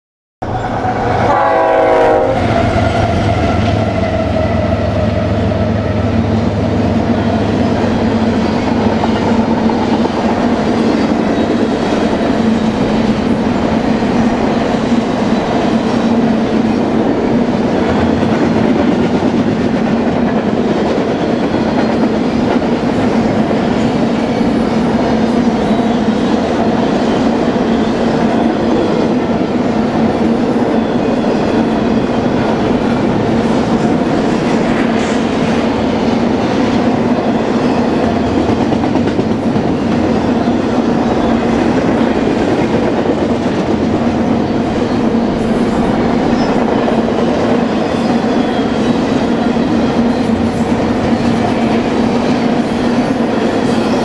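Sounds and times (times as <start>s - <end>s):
train horn: 0.4s - 6.7s
diesel locomotives: 0.4s - 54.0s.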